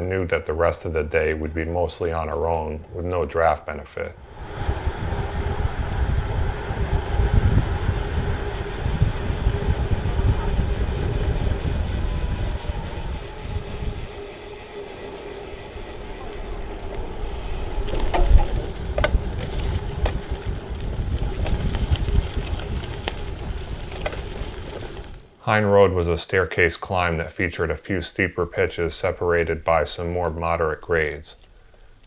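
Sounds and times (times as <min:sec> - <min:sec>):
tyres rumbling on road: 0:04.2 - 0:25.2
wind rushing over microphone: 0:04.2 - 0:25.2.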